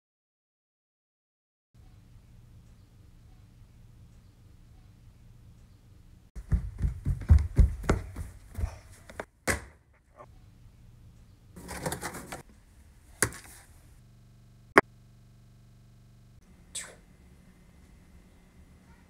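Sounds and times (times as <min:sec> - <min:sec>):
footsteps down carpeted stairs: 0:06.4 - 0:09.3.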